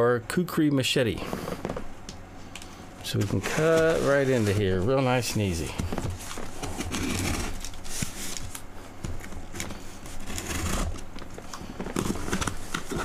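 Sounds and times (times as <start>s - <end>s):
cardboard rustling: 3.0s - 13.0s
blade scraping cardboard: 6.2s - 8.4s, 9.6s - 11.0s, 11.9s - 13.0s
blade slicing packing tape: 10.2s - 11.0s.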